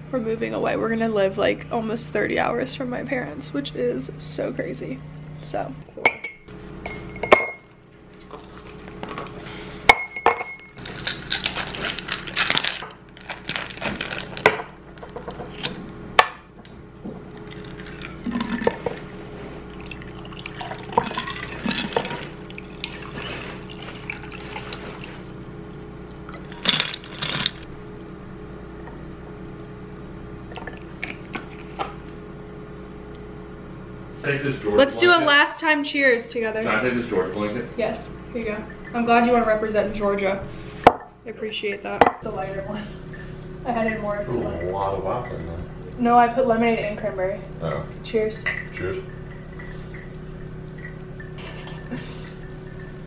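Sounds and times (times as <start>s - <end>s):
ice and glasses clinking: 9.9s - 15.3s, 48.4s - 53.0s.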